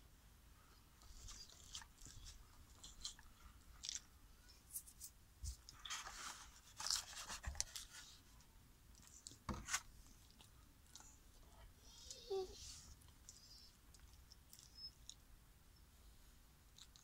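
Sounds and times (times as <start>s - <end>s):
dog chewing and crunching treats: 1.0s - 4.1s.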